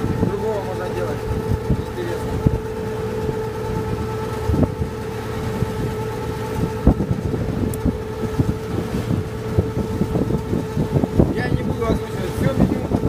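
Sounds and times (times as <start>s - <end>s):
boat engine droning: 0.0s - 13.0s
wind buffeting microphone: 0.0s - 13.0s.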